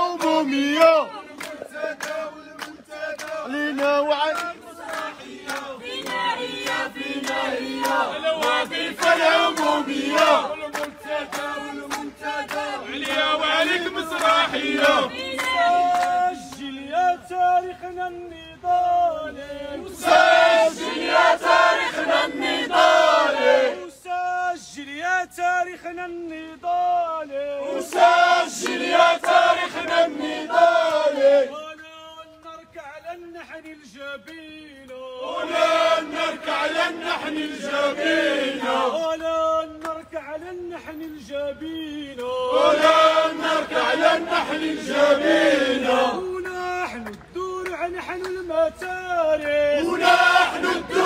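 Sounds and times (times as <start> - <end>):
crowd chanting: 0.0 - 17.3, 19.2 - 24.0, 27.2 - 31.7, 35.1 - 39.5, 42.2 - 46.5, 49.4 - 51.0.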